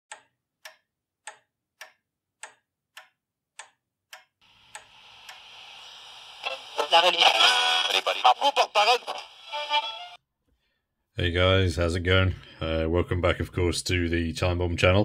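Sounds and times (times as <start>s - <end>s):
clock ticking: 0.1s - 5.6s
hiss: 4.5s - 6.5s.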